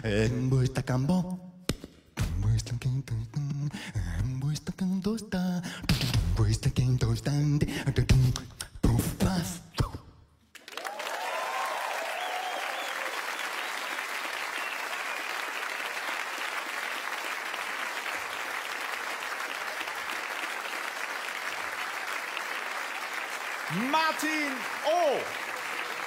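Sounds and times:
audience applauding: 0:10.5 - 0:26.0
person cheering: 0:23.7 - 0:25.5.

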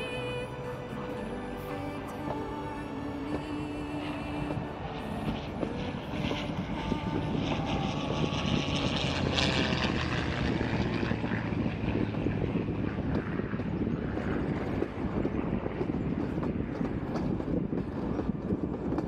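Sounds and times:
train clicks and clatter: 0:00.0 - 0:19.0
train running rumble: 0:00.0 - 0:19.0.

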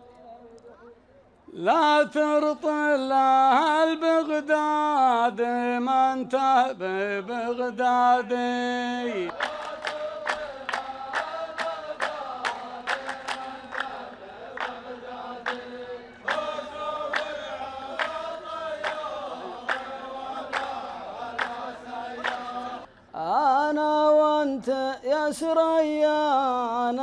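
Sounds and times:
man singing: 0:01.5 - 0:09.4, 0:23.2 - 0:27.0
men chanting in unison: 0:01.6 - 0:27.0
hand claps in steady time: 0:09.2 - 0:22.9.

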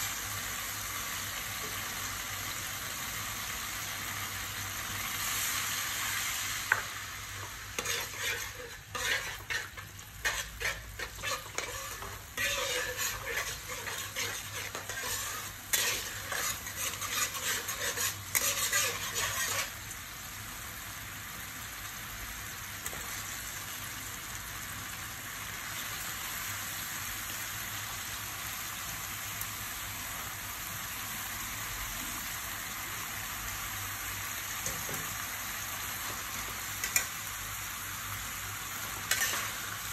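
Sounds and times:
wok sizzling: 0:00.0 - 0:39.9
metal spatula scraping a wok: 0:06.7 - 0:19.8, 0:35.9 - 0:37.3, 0:38.7 - 0:39.9.

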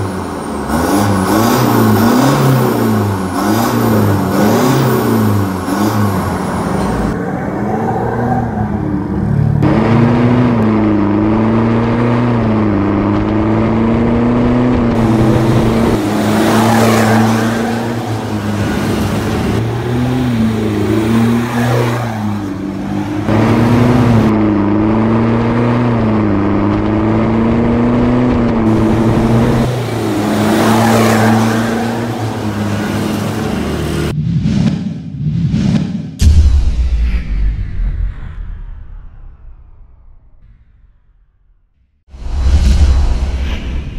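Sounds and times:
diesel truck engine rumble: 0:00.0 - 0:34.1
truck passing with tyre noise: 0:14.9 - 0:26.2, 0:28.4 - 0:34.1.

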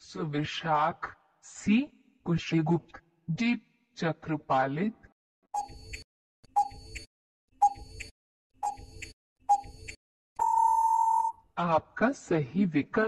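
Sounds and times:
countdown timer ticks: 0:05.6 - 0:10.6
long steady beep: 0:10.4 - 0:11.4.

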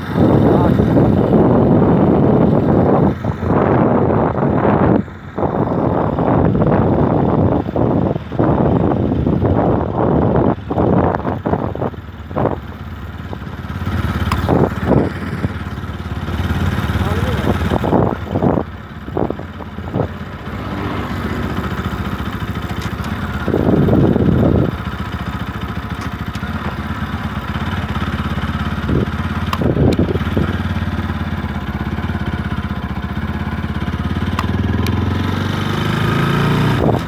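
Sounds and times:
motorcycle engine running: 0:00.0 - 0:37.0.

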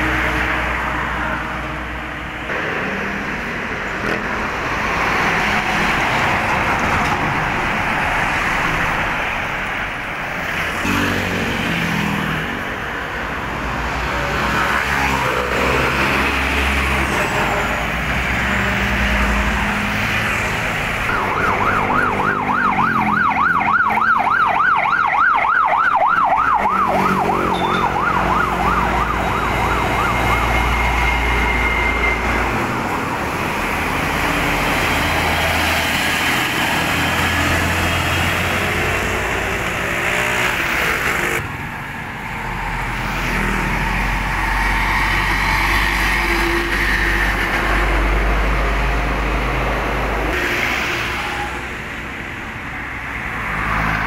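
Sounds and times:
heavy traffic passing: 0:00.0 - 0:54.0
siren warbling: 0:21.0 - 0:32.7.

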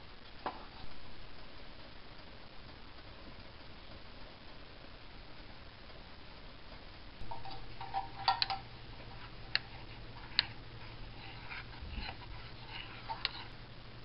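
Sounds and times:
low steady hum: 0:00.0 - 0:14.0
metal spoon clinking in mug: 0:07.3 - 0:08.6.

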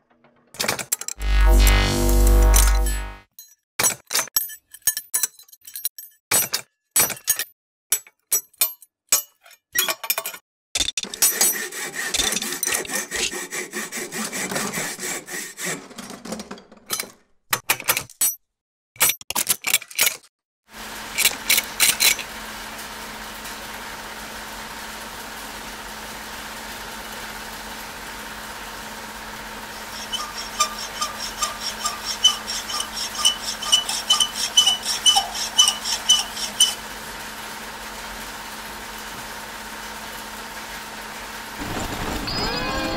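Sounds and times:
milling machine humming: 0:01.2 - 0:03.2, 0:22.3 - 0:42.9
end mill ticking: 0:29.7 - 0:36.8
metal lathe rasping and clinking: 0:29.7 - 0:36.9.

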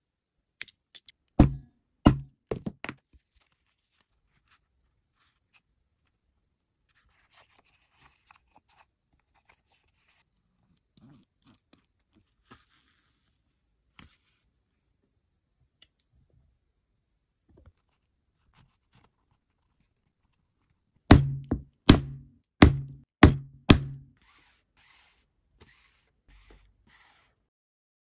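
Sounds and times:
sharp knocks on hard surface: 0:01.4 - 0:02.9, 0:21.1 - 0:24.1.

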